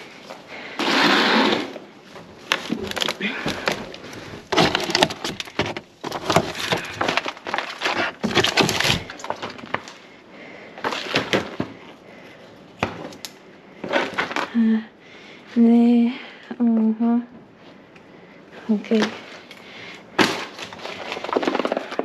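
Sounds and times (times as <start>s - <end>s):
plastic packaging crackling: 2.3s - 10.0s, 20.2s - 22.0s.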